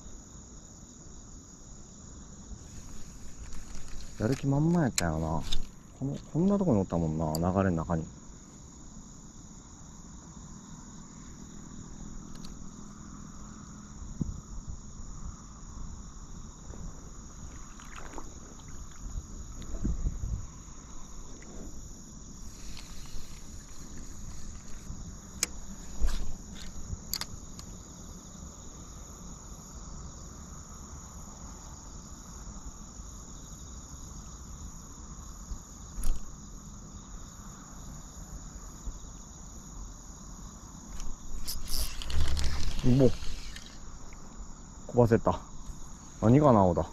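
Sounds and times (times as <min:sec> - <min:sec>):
insects trilling: 0:00.0 - 0:46.9
sharp clicks: 0:40.9 - 0:44.2.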